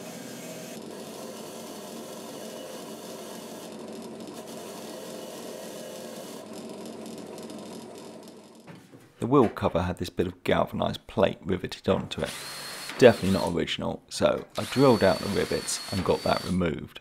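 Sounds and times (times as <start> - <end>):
drill press motor hum: 12.3 - 13.5, 14.5 - 16.5.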